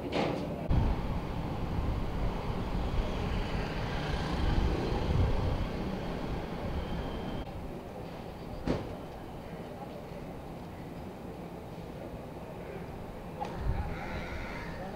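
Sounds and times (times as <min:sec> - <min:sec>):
low rumble of traffic: 0:00.0 - 0:14.9.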